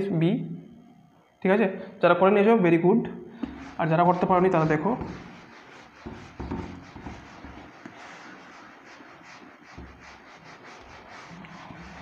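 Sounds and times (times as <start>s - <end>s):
duster scrubbing whiteboard: 3.4s - 12.0s.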